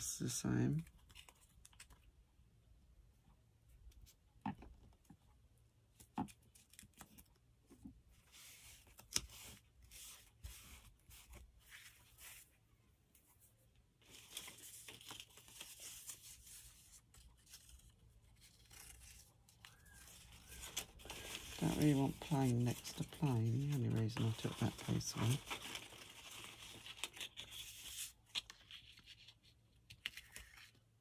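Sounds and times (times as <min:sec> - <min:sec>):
paper tearing and rustling: 0:14.0 - 0:30.8.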